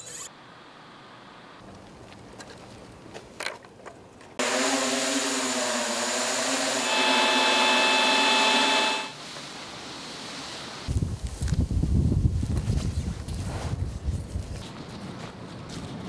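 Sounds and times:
drone propellers buzzing: 4.4s - 9.2s
high fan whine: 4.4s - 10.0s
leaf blower blasting air: 4.4s - 10.4s.

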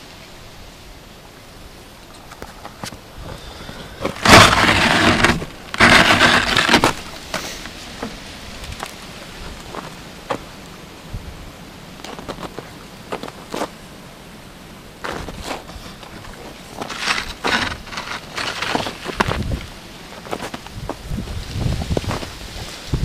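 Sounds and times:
snow crunching and scraping: 2.6s - 8.1s, 12.0s - 13.8s, 15.0s - 23.0s.

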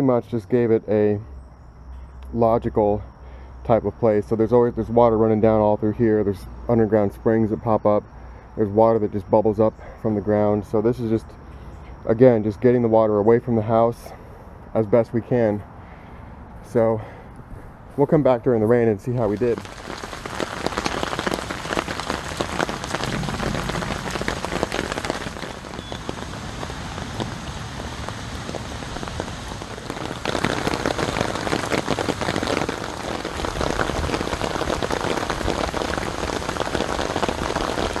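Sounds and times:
rain hitting ground and rocks: 16.5s - 38.0s.

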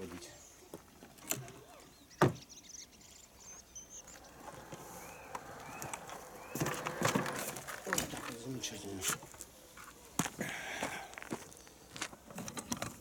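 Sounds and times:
small birds chirping: 0.0s - 12.3s
mower rolling down a ramp: 4.0s - 9.4s.

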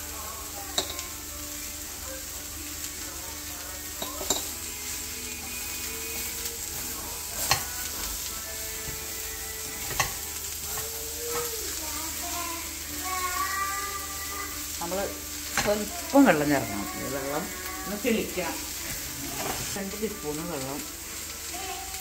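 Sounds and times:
beans sizzling in hot oil: 0.0s - 22.0s
spatula stirring in a pan: 3.7s - 20.2s.

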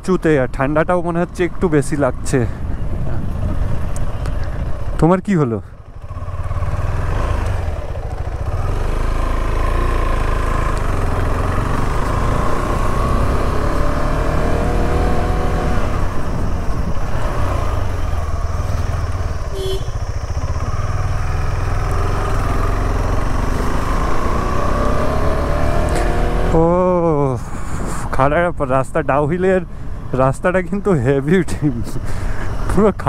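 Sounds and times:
motorcycle engine accelerating: 5.8s - 28.1s.

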